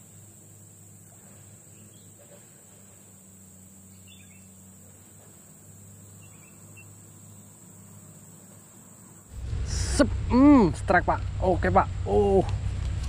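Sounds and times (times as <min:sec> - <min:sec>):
soft bird chirps: 0:00.0 - 0:09.3
low hum: 0:09.3 - 0:13.0.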